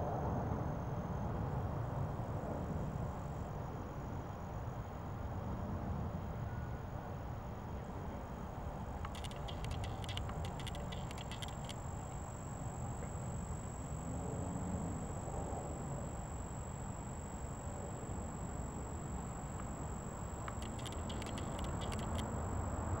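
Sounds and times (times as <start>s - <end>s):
thin high steady tone: 7.8s - 23.0s
rapid ticking: 9.0s - 22.4s.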